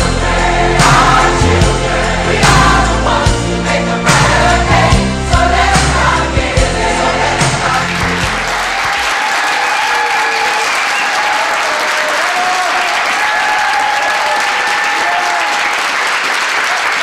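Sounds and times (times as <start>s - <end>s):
group singing: 0.0s - 8.8s
audience applauding: 7.2s - 17.0s.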